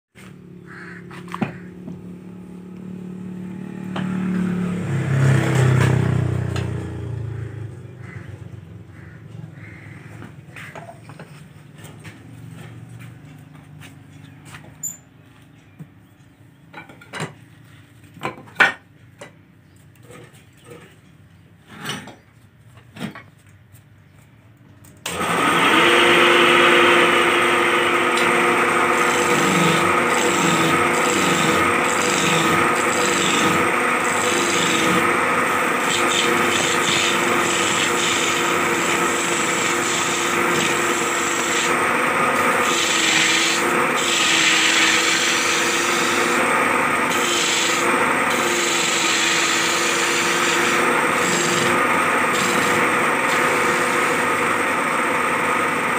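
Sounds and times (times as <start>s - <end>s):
wood lathe drone: 25.1s - 55.9s
chisel scraping spinning wood: 25.5s - 55.9s.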